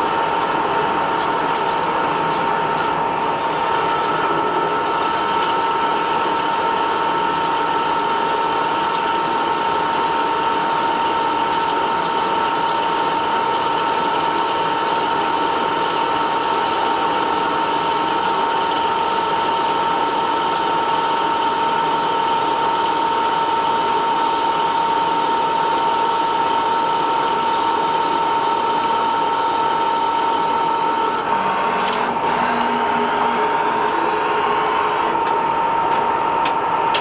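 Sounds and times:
lathe machine whine: 0.0s - 37.0s.

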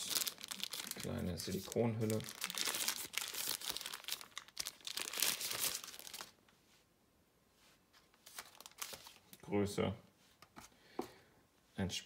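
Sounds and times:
plastic wrapper crinkling: 0.0s - 6.4s, 8.2s - 9.4s.

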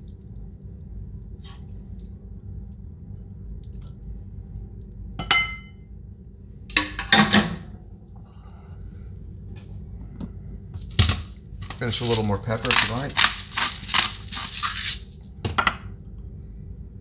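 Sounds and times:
steady low hum: 0.0s - 17.0s
tongs clattering and scraping in skillet: 10.8s - 15.2s
metal tongs clinking on cookware: 10.9s - 15.0s.

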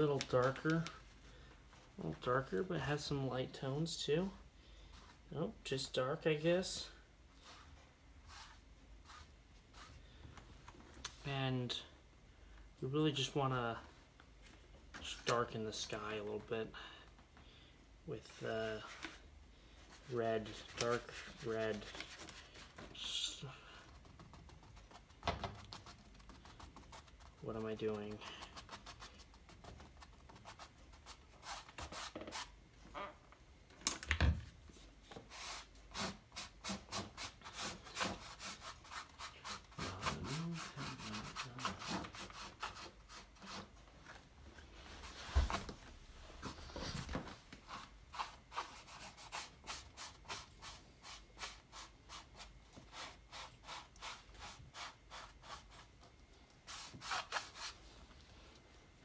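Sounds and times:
paintbrush scrubbing canvas: 20.4s - 32.5s, 35.3s - 43.8s, 47.7s - 55.9s, 56.6s - 57.9s.

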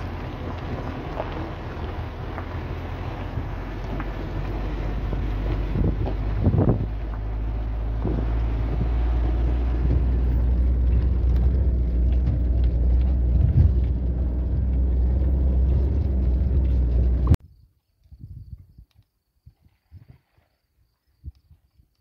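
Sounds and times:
car engine rumbling: 0.0s - 17.4s
road and wind noise: 0.0s - 20.2s.

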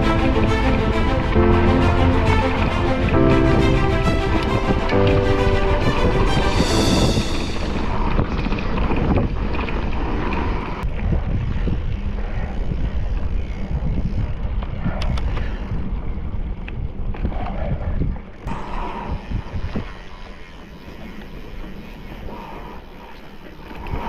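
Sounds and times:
wind buffeting microphone: 2.4s - 20.4s.

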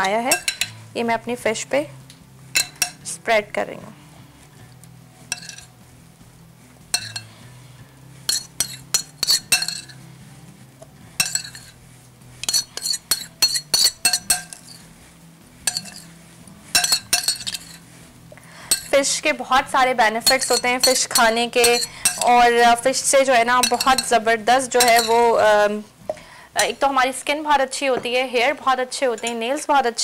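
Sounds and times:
metal spoon clinking on glass: 0.0s - 0.8s, 2.6s - 3.0s, 5.3s - 5.7s, 6.9s - 7.3s, 8.3s - 10.0s, 11.2s - 11.8s, 12.4s - 14.8s, 15.7s - 16.1s, 16.8s - 17.8s, 18.7s - 19.0s, 20.2s - 25.5s.

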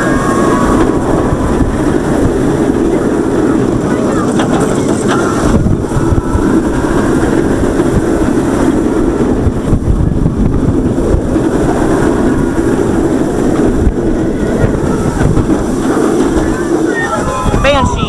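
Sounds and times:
roller coaster rumbling: 0.0s - 18.0s
wind on microphone: 0.0s - 18.0s.

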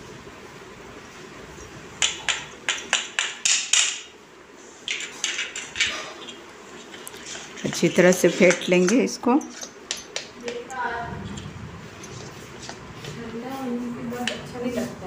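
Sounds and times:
spoon scraping around bowl: 4.9s - 12.9s.

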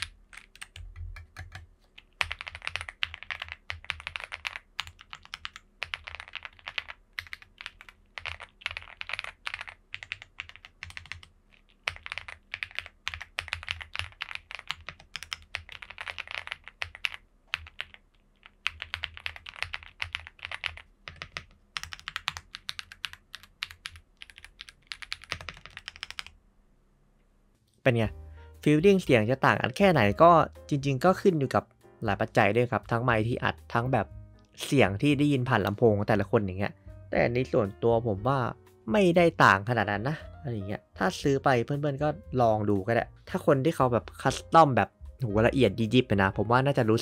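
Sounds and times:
mechanical keyboard typing: 0.0s - 26.3s.

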